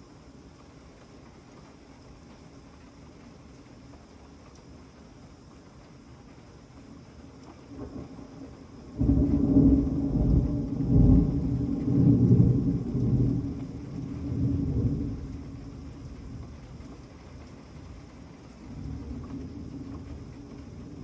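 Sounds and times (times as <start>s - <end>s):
heavy rain hissing: 0.0s - 21.0s
thunder rumbling: 7.7s - 21.0s.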